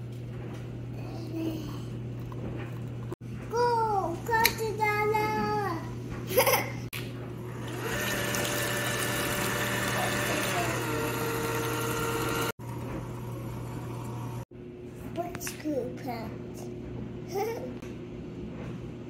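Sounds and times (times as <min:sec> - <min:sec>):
electric hand mixer whirring: 0:07.4 - 0:14.5.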